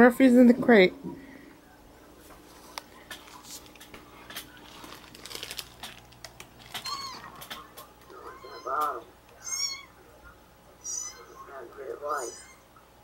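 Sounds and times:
kitten mewing: 6.7 - 7.5.

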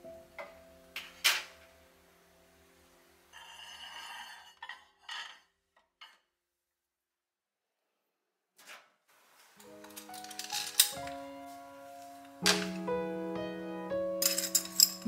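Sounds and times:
plate scraping against plates: 3.3 - 6.3
ceramic dishes clinking: 9.6 - 11.2, 14.2 - 15.0.

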